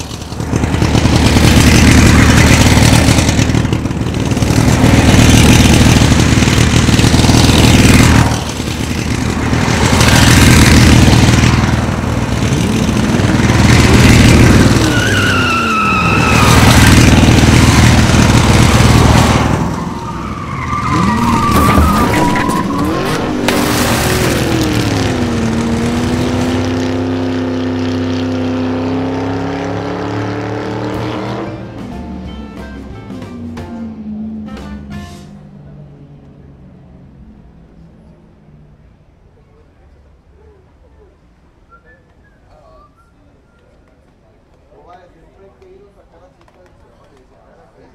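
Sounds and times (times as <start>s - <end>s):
racing car engines: 0.0s - 47.9s
tyre squeal: 14.6s - 16.9s, 19.7s - 23.5s, 41.7s - 43.8s.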